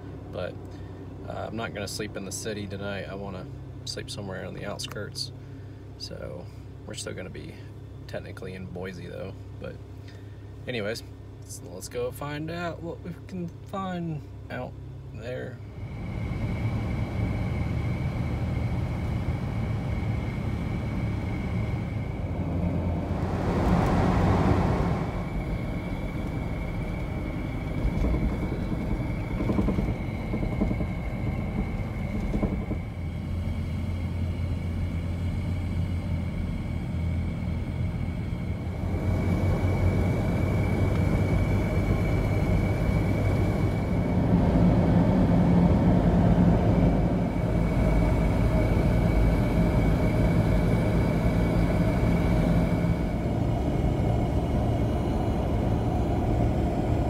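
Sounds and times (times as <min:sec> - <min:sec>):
engine and road rumble: 0:00.0 - 0:57.0
thin high whine: 0:15.3 - 0:57.0.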